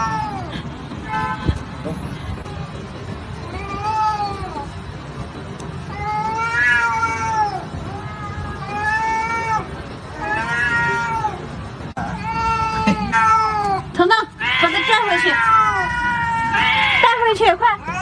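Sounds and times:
cat yowling: 0.0s - 1.4s, 5.9s - 18.0s.

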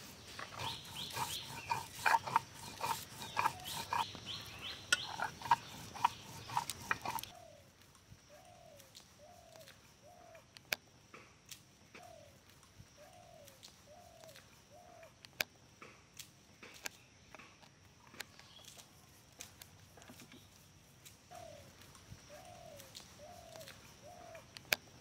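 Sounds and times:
dove cooing: 22.3s - 24.5s.

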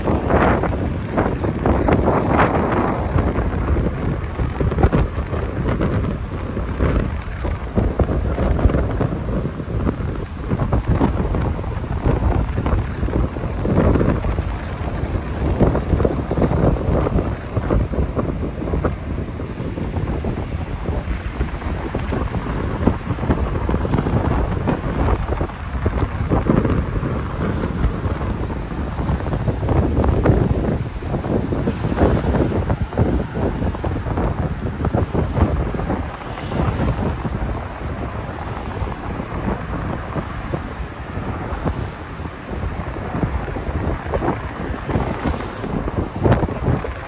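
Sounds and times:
wind buffeting microphone: 0.0s - 47.0s.

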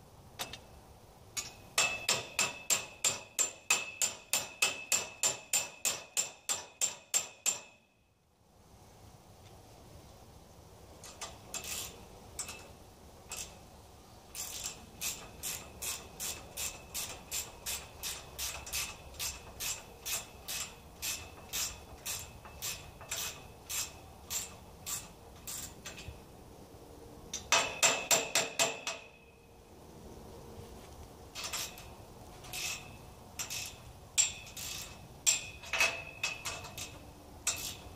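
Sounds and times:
ratchet wrench clicking: 14.3s - 26.1s, 31.4s - 37.9s.

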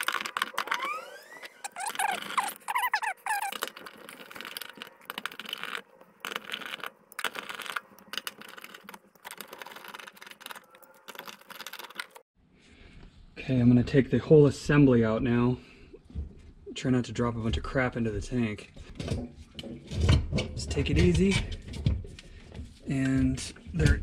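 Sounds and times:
high wavering squeaks: 0.0s - 5.8s.

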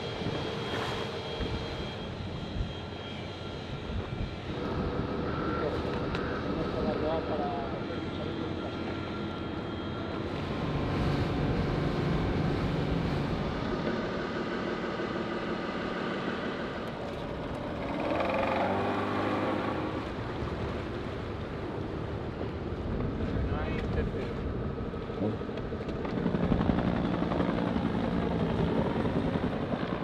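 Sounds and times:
wind: 0.0s - 30.0s
outboard motors running: 4.5s - 23.3s.

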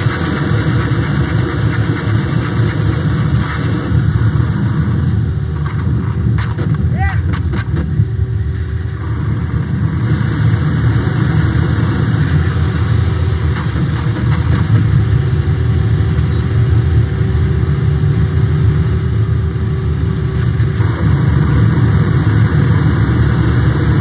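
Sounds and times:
low rumble of electronic noise: 0.0s - 24.0s.

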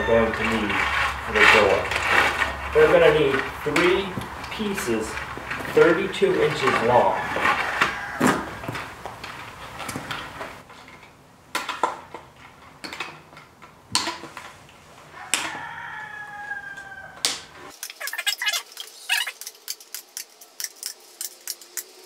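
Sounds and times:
rooster crowing: 0.0s - 0.9s, 6.8s - 9.0s, 15.1s - 18.2s.

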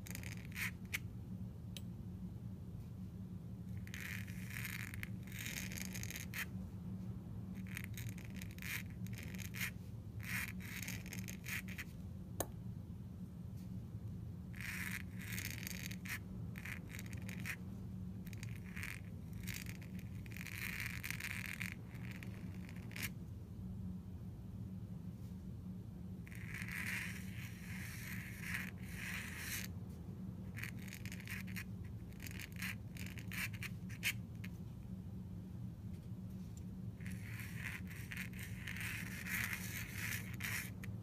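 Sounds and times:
pen nib scratching on paper: 0.0s - 1.0s, 3.8s - 6.5s, 7.6s - 11.9s, 14.6s - 17.6s, 18.2s - 23.1s, 26.3s - 29.7s, 30.5s - 34.6s, 37.0s - 40.9s
steady low hum: 0.0s - 41.0s.

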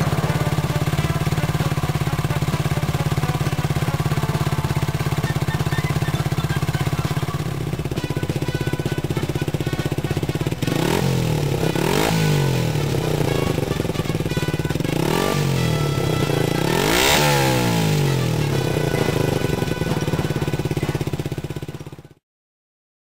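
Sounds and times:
motorcycle engine idling: 0.0s - 22.2s
throttle blips: 4.5s - 7.8s.

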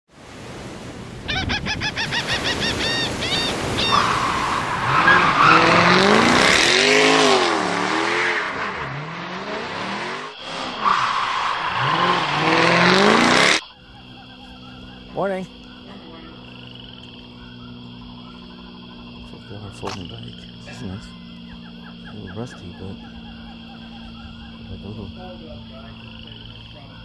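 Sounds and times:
surf: 0.1s - 8.8s
gull calls: 1.2s - 6.2s, 10.3s - 27.0s
tyres squealing: 2.1s - 16.7s
racing car engines passing: 3.9s - 27.0s.

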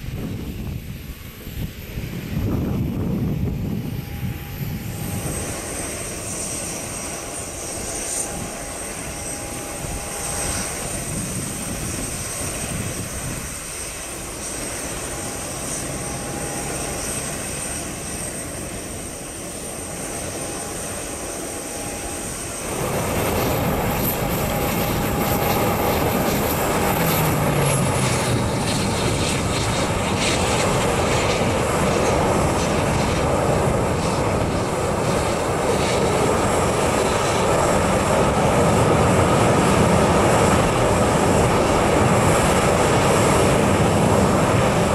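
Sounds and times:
jet engine whine: 0.0s - 44.9s
jet engines running: 0.0s - 44.9s.

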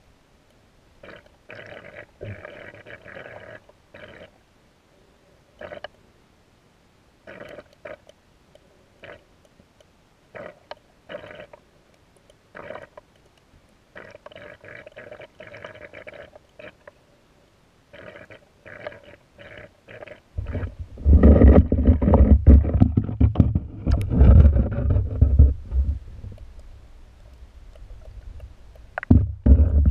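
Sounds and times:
underwater gurgling and bubbling: 18.0s - 26.4s, 29.1s - 29.9s
low rumbling and sloshing: 20.4s - 26.6s.

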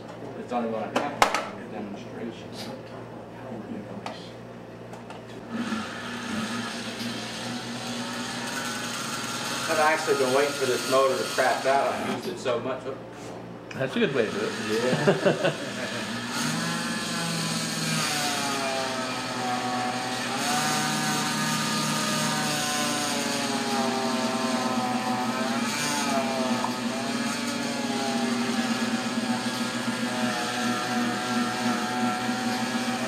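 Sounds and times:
electric motor whine: 5.5s - 12.3s, 14.1s - 33.0s.

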